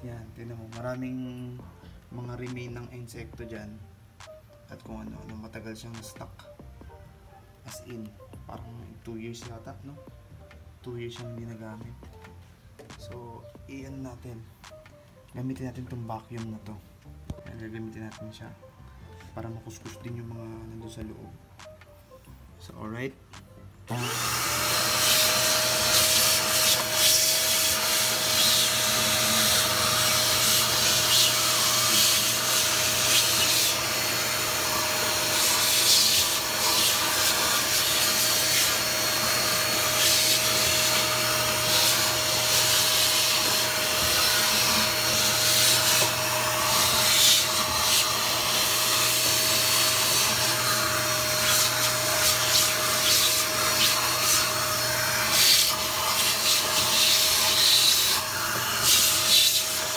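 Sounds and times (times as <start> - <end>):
handheld vacuum cleaner whining: 23.9 - 59.9.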